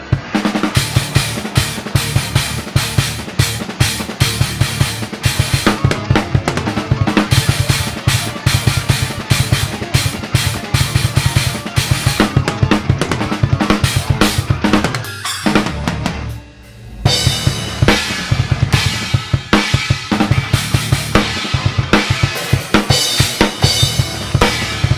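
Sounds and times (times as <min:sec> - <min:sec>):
bass drum strokes: 0:00.0 - 0:24.9
cymbals: 0:13.8 - 0:24.9.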